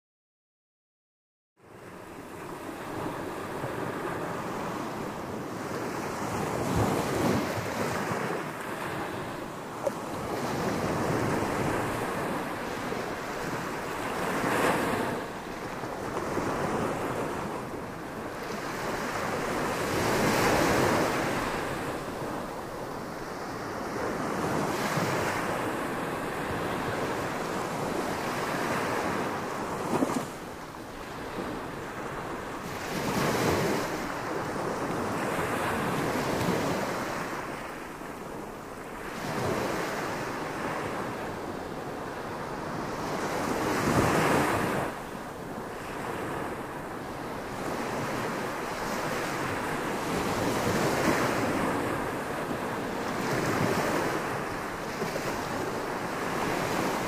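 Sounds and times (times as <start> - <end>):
waves washing up a beach: 1.6 - 57.0.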